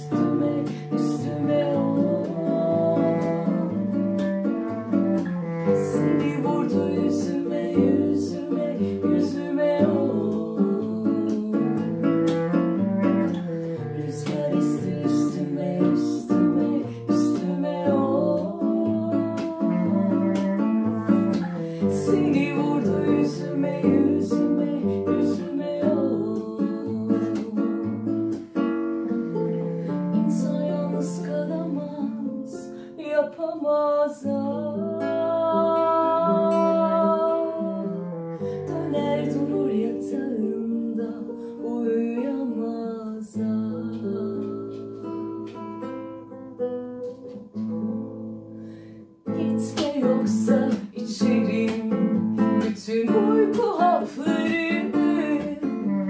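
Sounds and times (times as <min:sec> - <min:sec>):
woman singing: 0:00.0 - 0:46.3, 0:49.3 - 0:56.0
classical guitar plucking: 0:00.0 - 0:56.0
clarinet playing: 0:02.0 - 0:08.1, 0:11.9 - 0:14.0, 0:18.2 - 0:22.7, 0:29.0 - 0:30.3.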